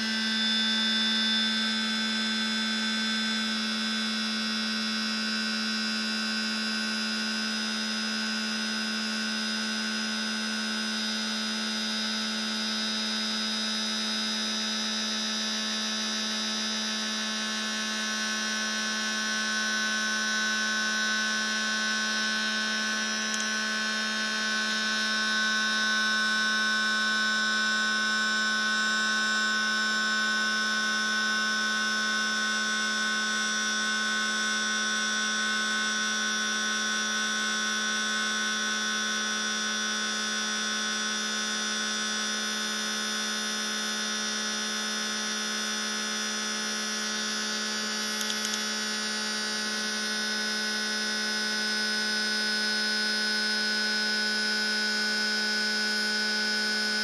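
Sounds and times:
electric air compressor humming: 0:00.0 - 0:03.8, 0:09.7 - 0:30.1, 0:44.5 - 0:57.0.

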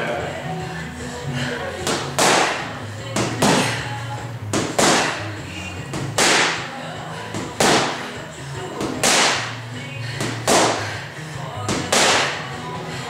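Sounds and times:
background music: 0:00.0 - 0:13.0
boxing gloves hitting mitts: 0:01.8 - 0:09.6, 0:10.2 - 0:11.0, 0:11.6 - 0:12.6.

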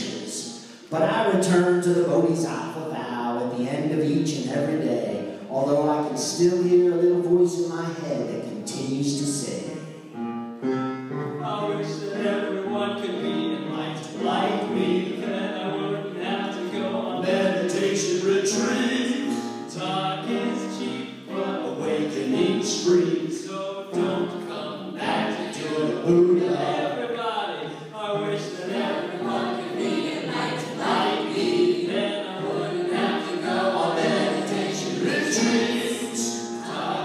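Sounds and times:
voices singing together: 0:11.1 - 0:37.0.

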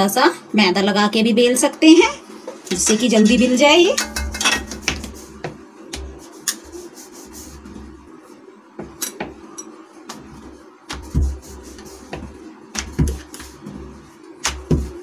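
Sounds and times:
rolling pin rolling dough: 0:02.7 - 0:15.0
rolling pin knocking on countertop: 0:04.0 - 0:06.2, 0:14.4 - 0:15.0.

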